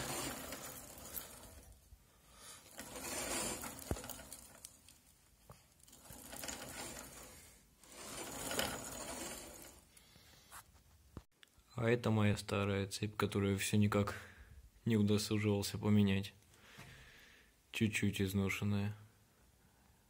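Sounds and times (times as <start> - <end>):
motorcycle chain whirring rattle: 0.0 - 1.9, 2.5 - 5.1, 5.7 - 10.0.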